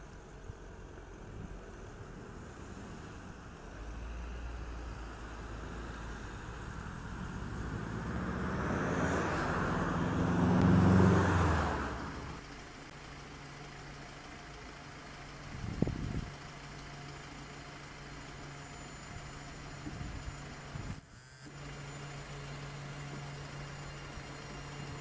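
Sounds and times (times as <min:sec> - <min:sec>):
vehicle passing by: 0:01.3 - 0:12.4.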